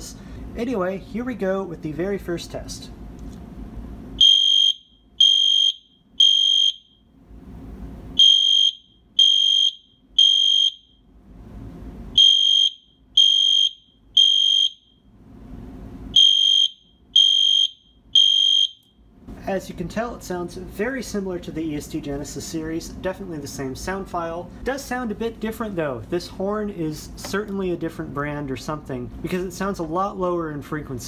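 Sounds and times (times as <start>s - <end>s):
fire alarm horn beeps: 4.2s - 7.2s, 8.2s - 11.2s, 12.1s - 15.1s, 16.1s - 19.1s.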